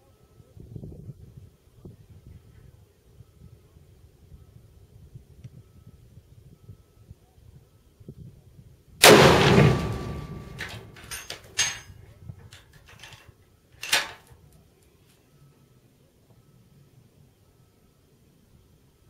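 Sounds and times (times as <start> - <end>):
rifle shot: 9.0 - 11.4
rifle bolt metallic clicks: 13.8 - 14.3.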